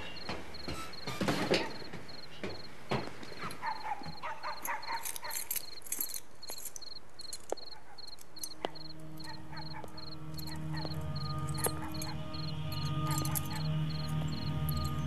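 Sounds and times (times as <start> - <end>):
crickets chirping: 0.0 - 15.0
keys jingling at door lock: 3.3 - 15.0.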